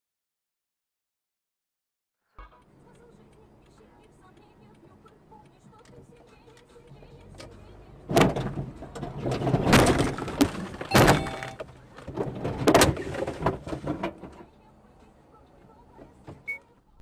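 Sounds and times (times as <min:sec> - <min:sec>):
loud thumps and knocks: 0:08.1 - 0:14.3
rattling clatter: 0:08.1 - 0:14.5.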